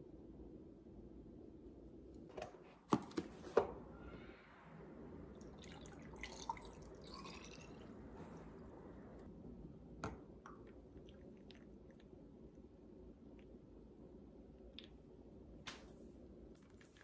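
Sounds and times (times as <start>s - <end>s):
milk pouring over ice cubes: 5.4s - 8.3s.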